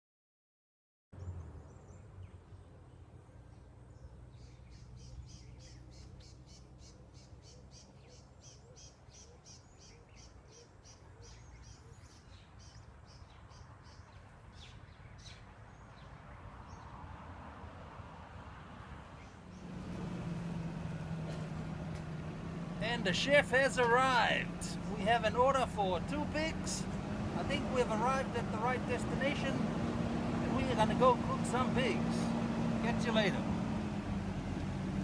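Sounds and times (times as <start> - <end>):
bird chirping: 1.2 - 17.0.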